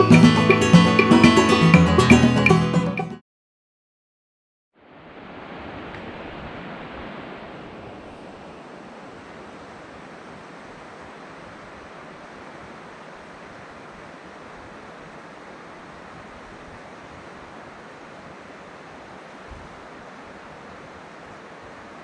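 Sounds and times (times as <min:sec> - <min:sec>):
outdoor ambience rushing noise: 0:04.8 - 0:22.0.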